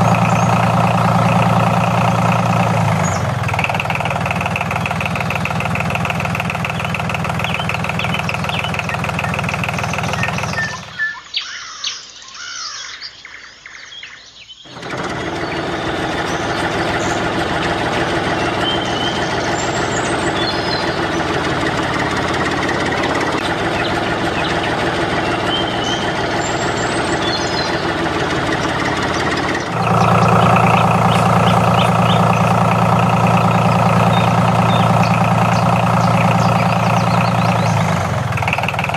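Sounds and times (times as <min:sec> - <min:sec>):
tractor engine idling: 0:00.0 - 0:11.2, 0:14.7 - 0:38.9
birds chirping: 0:00.0 - 0:38.9.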